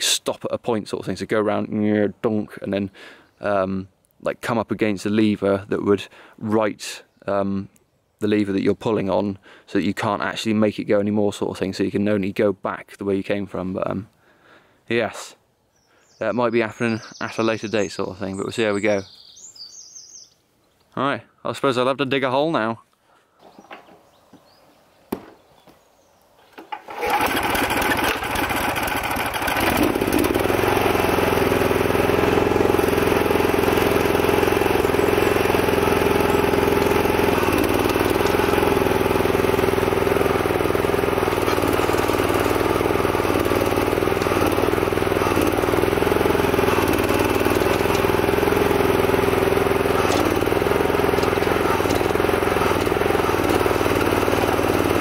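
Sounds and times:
small petrol engine running: 0:26.7 - 0:55.0.

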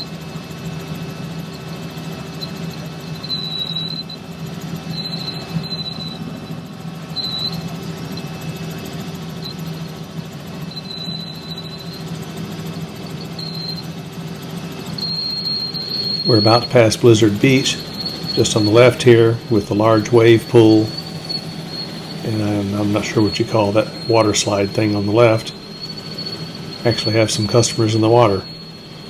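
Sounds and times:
helicopter cabin drone: 0:00.0 - 0:29.0
short high-pitched squeal: 0:15.0 - 0:29.0.

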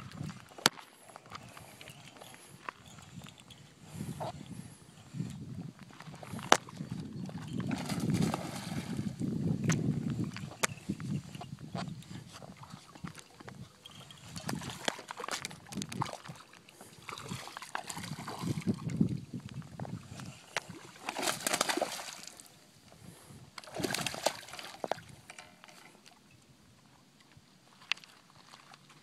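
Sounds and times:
fish splashing in water: 0:20.6 - 0:22.5, 0:23.6 - 0:24.9.

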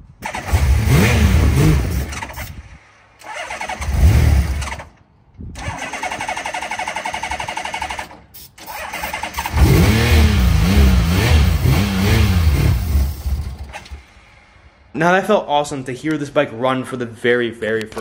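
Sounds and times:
motorcycle engine cranking and revving: 0:00.0 - 0:14.2.

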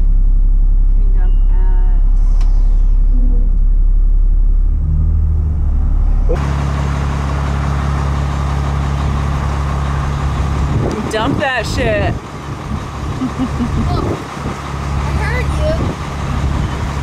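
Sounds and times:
motorhome engine rumbling: 0:00.0 - 0:17.0.

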